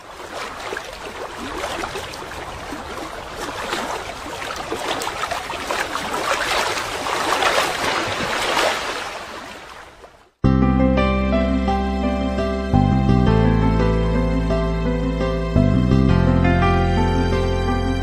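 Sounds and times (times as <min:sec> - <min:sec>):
small waves lapping and splashing: 0:00.0 - 0:10.4.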